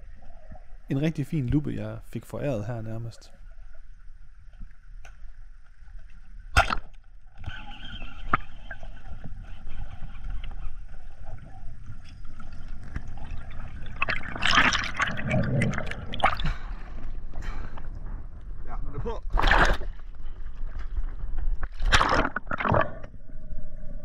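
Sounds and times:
bubbling and gurgling: 0:06.5 - 0:24.0
muffled underwater rumble: 0:07.3 - 0:21.8.

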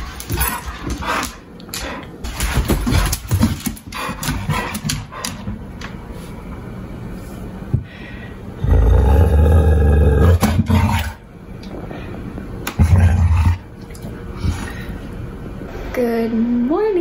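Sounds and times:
paws clicking on wooden floor: 0:00.0 - 0:06.0
dog growling: 0:08.6 - 0:11.2, 0:12.7 - 0:13.7.

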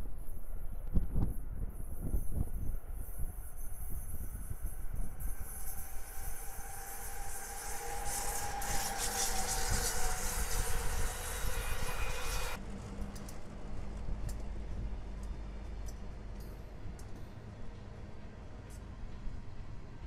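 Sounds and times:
low hum of diesel locomotive: 0:00.0 - 0:20.0
train passing at speed: 0:00.0 - 0:20.0.

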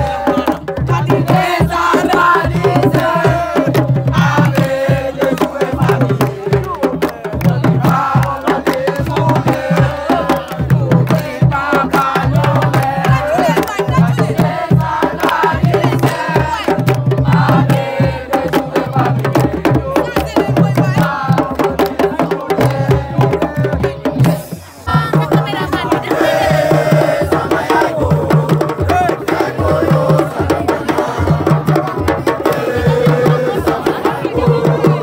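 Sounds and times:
fast hand drumming: 0:00.0 - 0:35.0
voices singing: 0:00.0 - 0:35.0.

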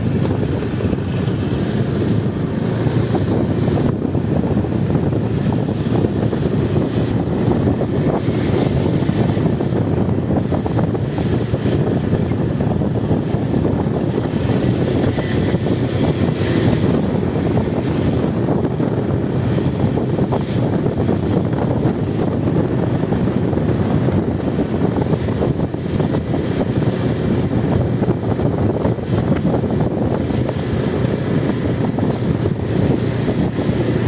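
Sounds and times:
motorbike engine rumble: 0:00.0 - 0:34.0
wind buffeting microphone: 0:00.0 - 0:34.0.

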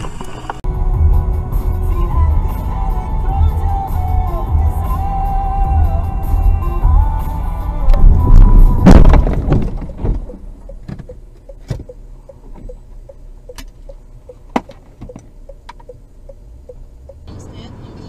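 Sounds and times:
car collision: 0:08.0 - 0:11.9
faint even ticking: 0:10.2 - 0:17.3.

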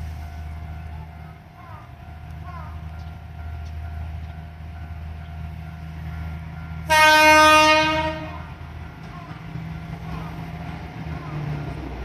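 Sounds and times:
train horn blast: 0:06.8 - 0:08.5.

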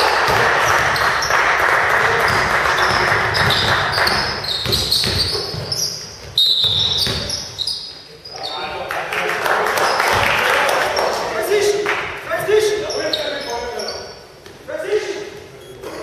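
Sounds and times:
shoes squeaking on court floor: 0:00.0 - 0:01.5, 0:02.2 - 0:08.7, 0:12.4 - 0:16.0
crowd and court noise: 0:00.0 - 0:16.0
ball bouncing: 0:00.2 - 0:01.1, 0:02.2 - 0:07.4.

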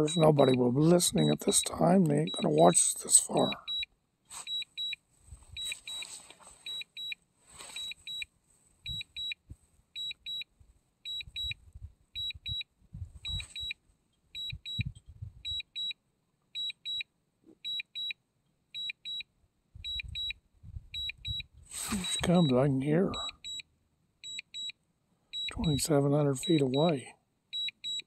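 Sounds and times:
high double beeps: 0:00.0 - 0:05.0, 0:21.0 - 0:23.6, 0:25.4 - 0:27.0
wind rumble on microphone: 0:11.3 - 0:13.7, 0:14.4 - 0:15.6, 0:19.8 - 0:21.7.

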